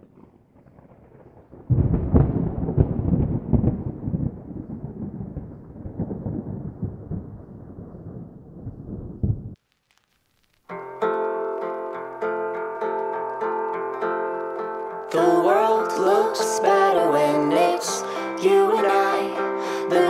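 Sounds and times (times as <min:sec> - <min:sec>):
thunder-like rumble with crackles: 0:00.0 - 0:10.2.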